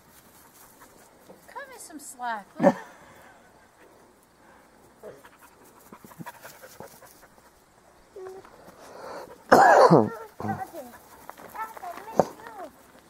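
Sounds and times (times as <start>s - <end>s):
dog panting: 5.0s - 7.7s, 10.4s - 12.5s.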